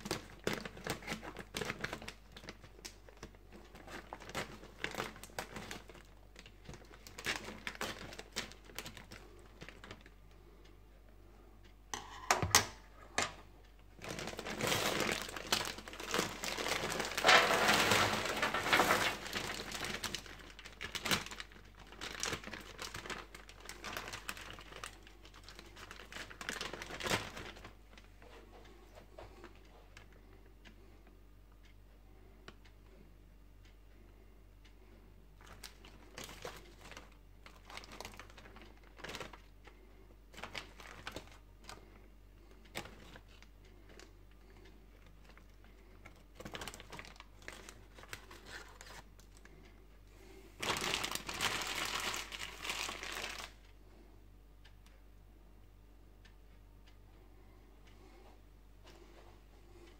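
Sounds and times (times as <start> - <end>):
plastic bag crinkling: 0.0 - 10.2, 13.9 - 28.1, 35.4 - 39.5, 40.3 - 41.8, 42.7 - 44.1, 45.0 - 49.5, 50.6 - 53.6
frozen food rattling on metal tray: 14.0 - 25.0
scissors snipping plastic bag: 14.0 - 25.0.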